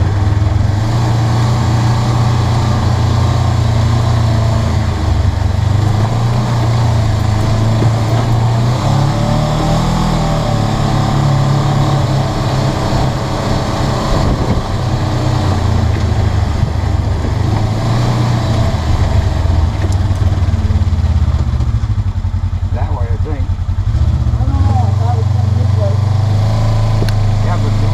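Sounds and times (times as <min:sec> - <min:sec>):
off-road vehicle engine revving: 0:00.0 - 0:27.9.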